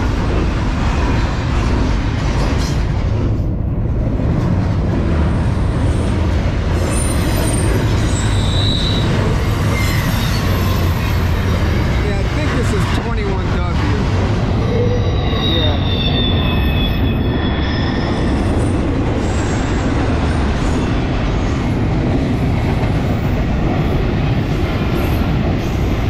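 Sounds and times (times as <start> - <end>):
train wheels rumbling on rail: 0.0 - 26.0
wheel squeal: 6.9 - 11.0, 14.8 - 18.4.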